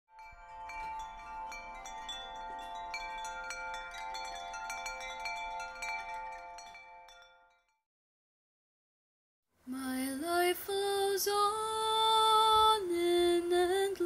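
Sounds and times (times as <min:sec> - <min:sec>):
wind chimes ringing: 0:00.1 - 0:07.8.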